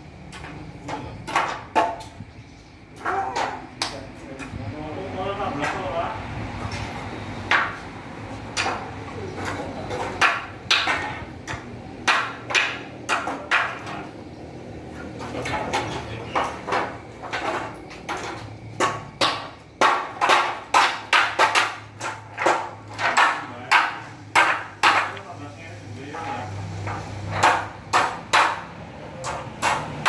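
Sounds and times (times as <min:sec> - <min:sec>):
sharp hammering knocks: 0:00.4 - 0:02.2, 0:07.4 - 0:07.9, 0:09.9 - 0:14.1, 0:15.5 - 0:25.2, 0:26.2 - 0:30.0.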